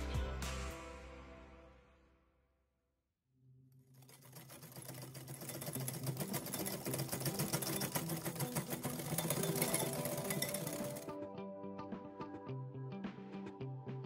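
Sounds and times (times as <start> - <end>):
background music: 0.0 - 2.2, 7.2 - 14.0
whisk clattering against glass bowl: 4.0 - 11.1.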